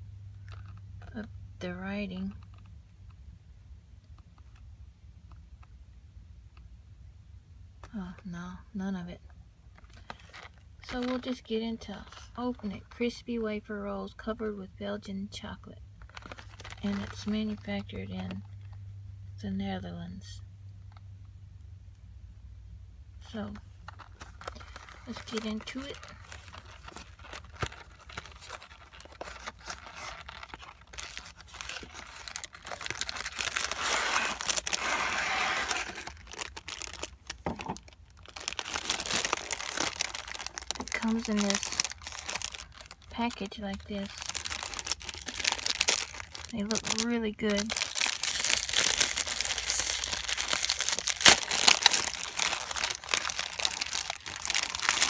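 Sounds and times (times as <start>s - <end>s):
plastic packaging crinkling: 9.7s - 12.4s, 16.0s - 18.7s, 23.5s - 55.0s
cardboard box tearing: 26.8s - 37.1s, 47.7s - 55.0s.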